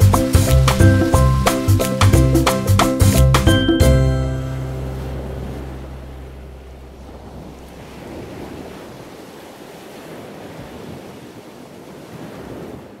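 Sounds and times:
sea surf rushing: 0.0 - 13.0
music note: 0.6 - 7.0.

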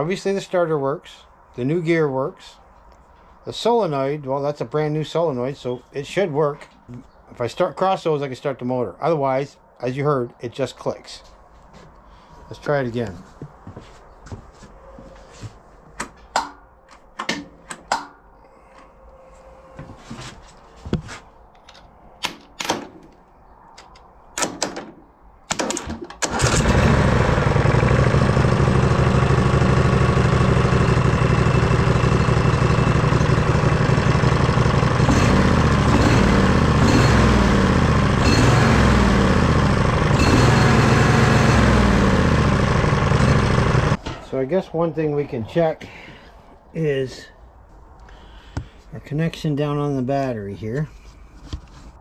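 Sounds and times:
engine cranking: 25.6 - 44.0
lawn tractor engine running: 26.2 - 44.0.

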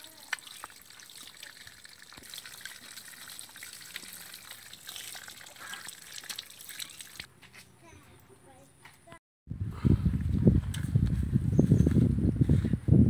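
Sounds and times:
small wet clicks: 0.0 - 7.3
water trickling and dripping: 0.0 - 7.3.

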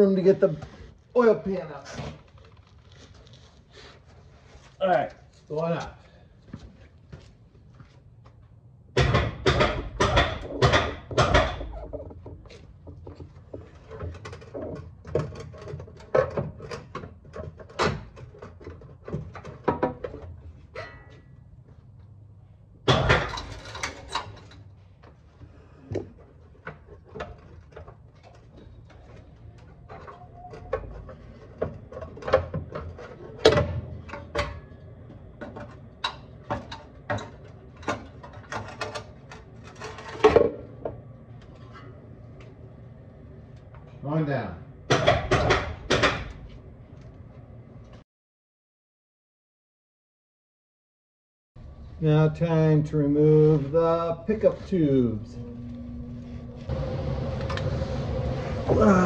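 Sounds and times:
metal clunks and scrapes of tools: 9.0 - 21.4, 22.9 - 42.5.

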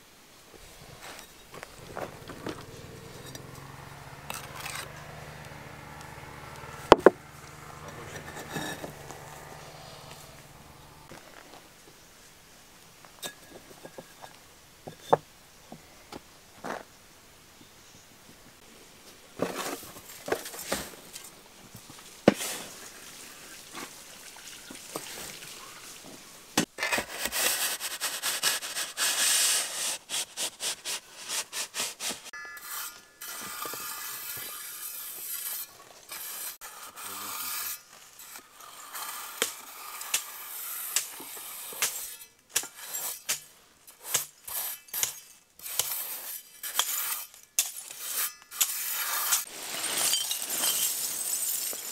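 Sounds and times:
trowel rasping strokes: 4.2 - 4.9, 26.8 - 50.8
trowel tapping and scraping bricks: 6.9 - 7.2.

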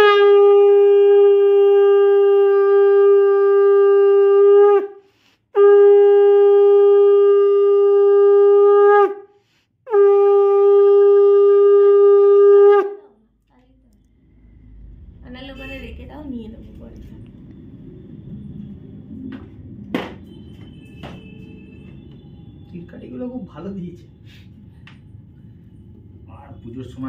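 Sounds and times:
conch shell blasts: 0.0 - 13.0.

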